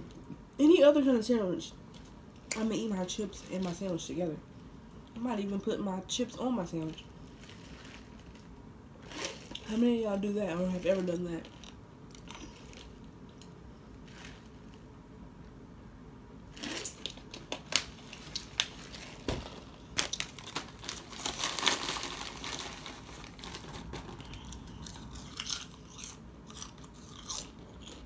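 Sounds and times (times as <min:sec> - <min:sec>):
chip bag crinkling: 0:06.7 - 0:13.1, 0:16.5 - 0:28.0.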